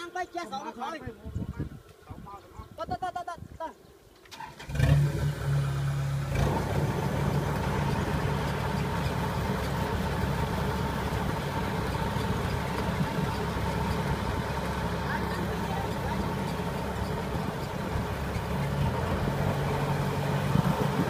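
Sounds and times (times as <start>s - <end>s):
combine harvester running: 4.2s - 21.0s.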